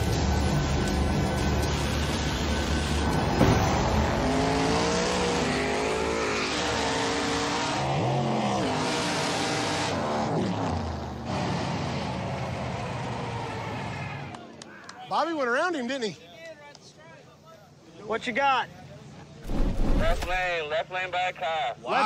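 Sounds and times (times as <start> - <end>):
drag cars racing at full throttle: 0.0 - 14.5.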